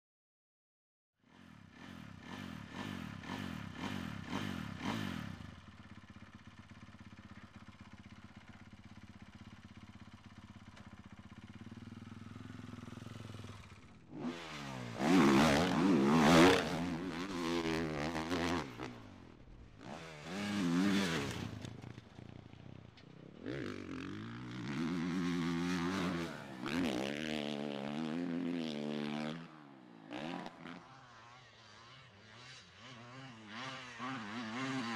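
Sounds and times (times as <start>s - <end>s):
motorbike engine revving: 1.3s - 22.4s, 23.4s - 31.0s, 31.7s - 34.9s.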